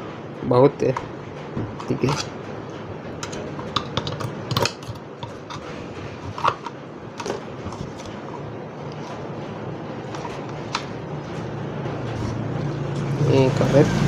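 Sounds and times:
steady low hum: 0.0s - 14.0s
screwdriver scraping metal cup: 1.8s - 2.3s, 3.2s - 9.2s.

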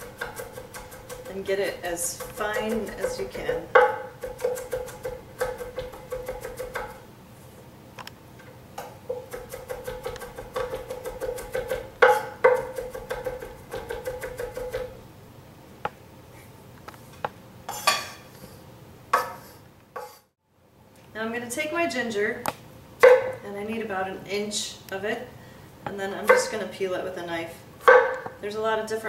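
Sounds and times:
knife chopping on wooden board: 0.0s - 7.0s, 9.1s - 15.0s, 23.0s - 23.3s.

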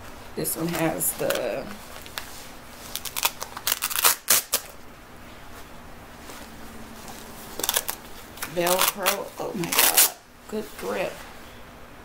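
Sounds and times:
velcro ripping apart: 1.3s - 4.8s, 7.5s - 10.2s.

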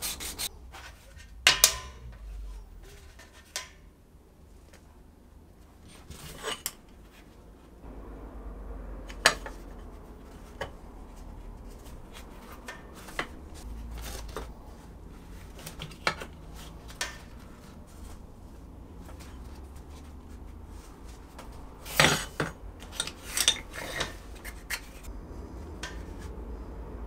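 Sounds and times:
metal plates clinking and knocking: 1.2s - 3.8s, 21.8s - 25.1s.

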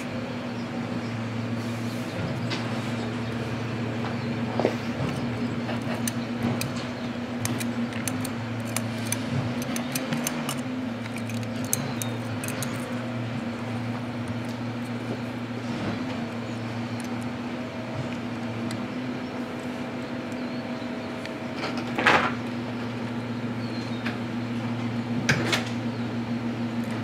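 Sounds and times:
steady low hum: 0.0s - 27.0s
plastic toy clicks and rattles: 7.4s - 13.0s.

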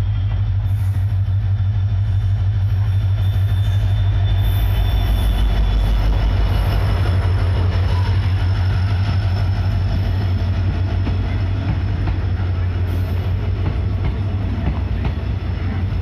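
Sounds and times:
diesel locomotive engine drone: 0.0s - 16.0s
wheels on rail: 0.0s - 16.0s
high wheel squeal: 0.1s - 7.1s.

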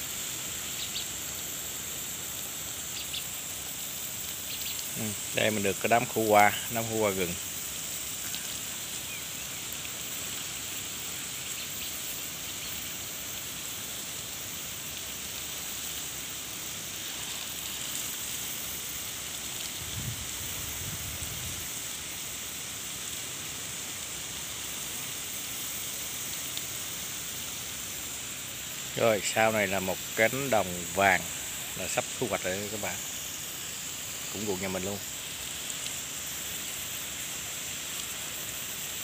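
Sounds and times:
hose water spraying on plants: 0.0s - 39.0s.

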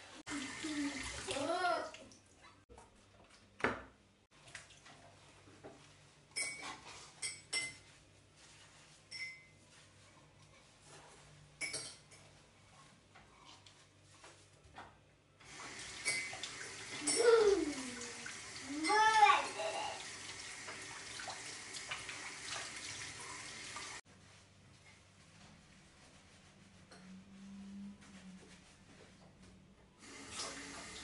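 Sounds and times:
tap water running and splashing: 0.0s - 2.3s, 15.4s - 24.0s, 30.0s - 31.0s
sponge wiping a bowl: 7.8s - 11.5s, 24.0s - 29.4s.

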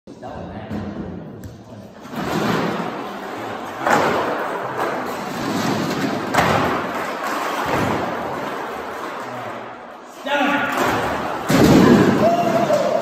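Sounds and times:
loud plastic crashes: 2.0s - 9.6s, 10.6s - 13.0s
plastic clattering on concrete: 2.1s - 9.6s.

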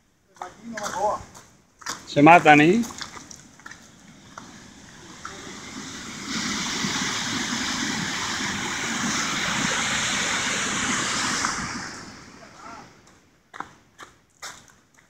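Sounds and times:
waterfall rushing over boulders: 3.2s - 12.9s.

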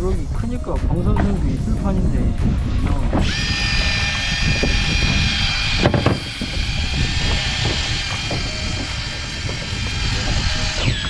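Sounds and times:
boat rumble: 0.0s - 10.7s
low wind: 0.0s - 11.0s
fishing reel motor whining: 3.2s - 11.0s.

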